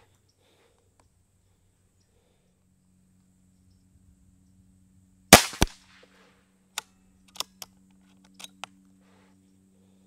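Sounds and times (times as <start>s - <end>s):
air pistol shot crack: 5.3s - 5.9s
quieter second crack: 5.4s - 6.1s.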